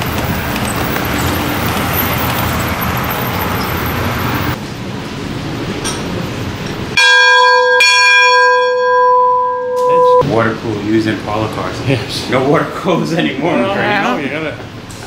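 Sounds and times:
large brass bell ringing: 7.0s - 10.2s.

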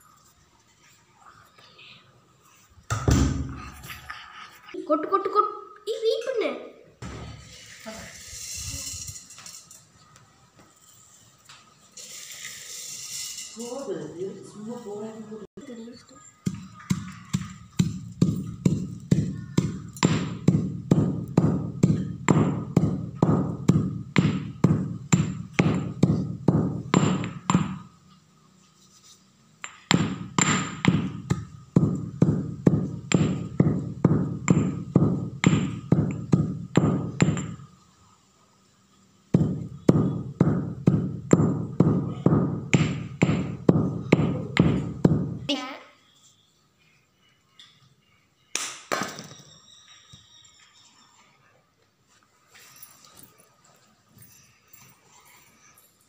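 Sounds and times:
stone pestle pounding in mortar: 16.5s - 27.8s, 29.6s - 37.6s, 39.4s - 45.4s.

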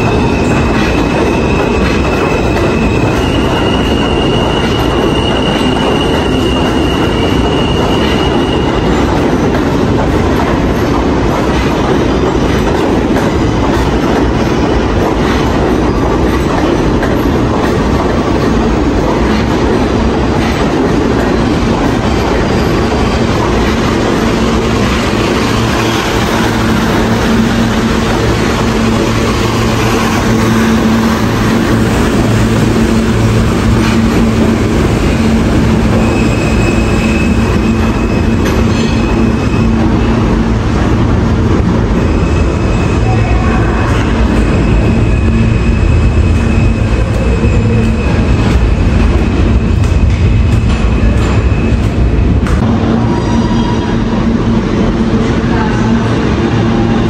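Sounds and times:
high wheel squeal: 0.0s - 9.5s, 20.4s - 40.6s, 41.9s - 52.0s
subway train wheels rumbling: 0.0s - 57.0s.

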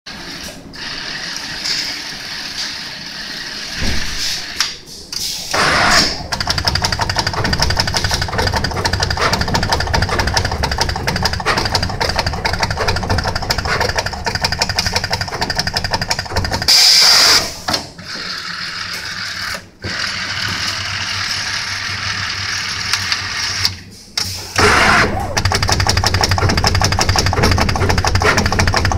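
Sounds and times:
machinery rattling and humming: 0.1s - 28.9s
loud burst of noise: 0.8s - 4.6s, 5.3s - 10.6s, 24.3s - 28.8s.

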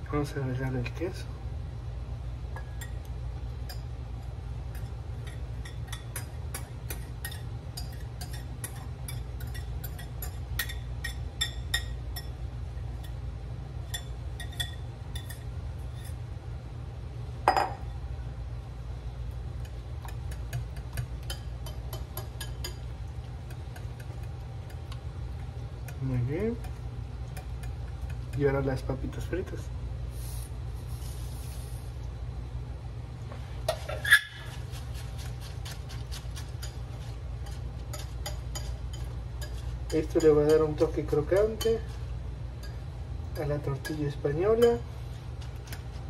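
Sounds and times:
steady low hum: 0.0s - 46.0s
whisk clinking against glass bowl: 33.7s - 42.0s, 43.4s - 44.8s.

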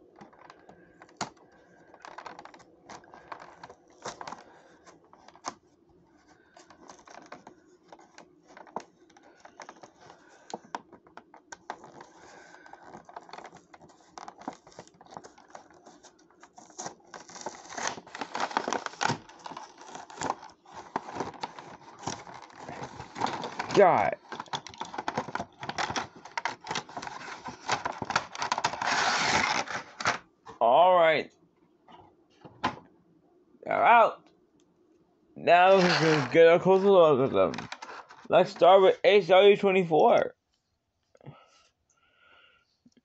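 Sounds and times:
blister packaging being opened: 6.5s - 30.2s, 35.5s - 38.6s
packaging tearing and crinkling: 11.7s - 30.2s, 35.5s - 38.3s.

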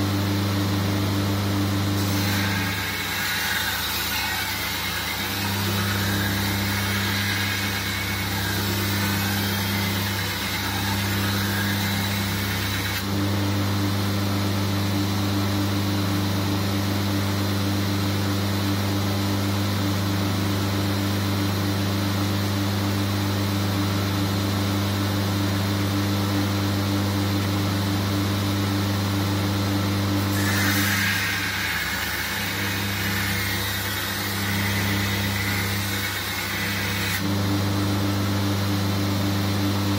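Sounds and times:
steel grinding on abrasive belt: 2.0s - 13.0s, 30.3s - 37.2s
belt grinder motor hum: 2.0s - 13.2s, 30.2s - 37.5s.

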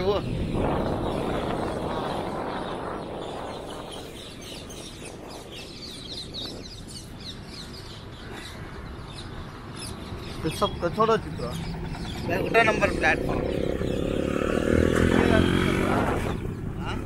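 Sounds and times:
birds chirping: 0.0s - 17.0s
vehicle rumble on road: 9.0s - 17.0s.

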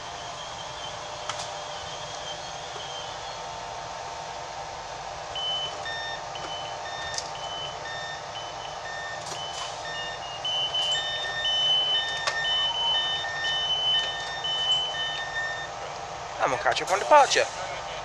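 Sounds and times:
stationary train hum: 0.0s - 18.0s
door-closing warning beeps: 5.3s - 15.8s.

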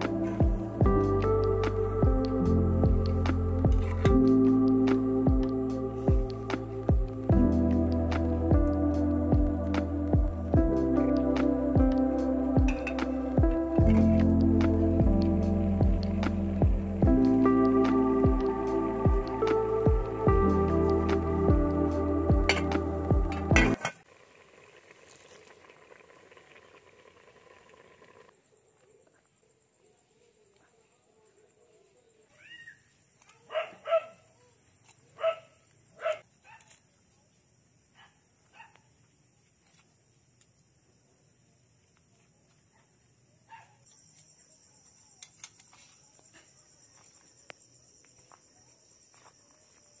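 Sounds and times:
crickets chirring: 0.0s - 50.0s
soup bubbling and hissing: 23.8s - 28.3s.

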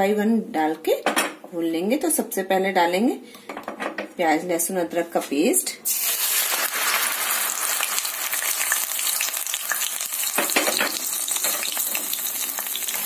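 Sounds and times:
paste sizzling in hot oil: 5.8s - 13.0s.

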